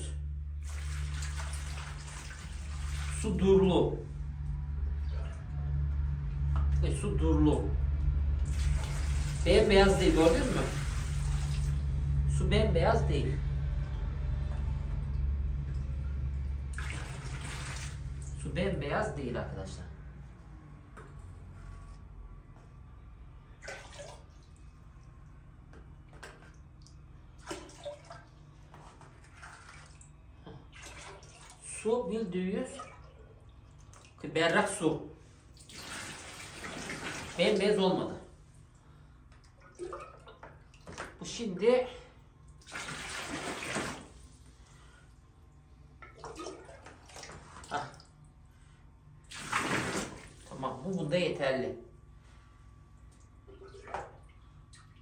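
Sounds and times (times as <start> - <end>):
water splashing in a basin: 0.5 - 3.6, 8.2 - 12.2, 14.7 - 18.5, 23.6 - 31.9, 32.6 - 34.8, 35.5 - 37.8, 38.7 - 45.0, 45.8 - 48.4, 49.2 - 51.1, 53.0 - 55.0
water pouring into basin: 0.6 - 3.4, 8.4 - 11.9, 16.7 - 18.4, 23.6 - 24.6, 30.7 - 31.7, 35.6 - 37.6, 42.5 - 44.2, 49.3 - 50.5.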